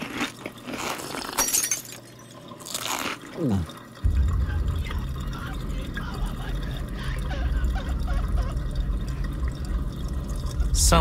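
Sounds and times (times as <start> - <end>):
water sloshing: 1.6 - 11.0
dishwasher rumbling: 4.0 - 11.0.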